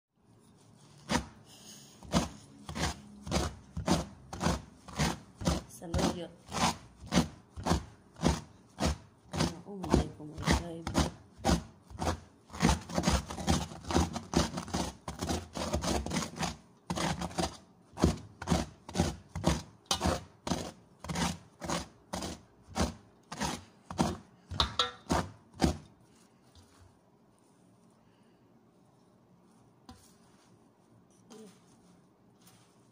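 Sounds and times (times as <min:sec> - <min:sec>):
knife chopping leaves in metal bowl: 0:00.6 - 0:01.4, 0:02.0 - 0:26.0.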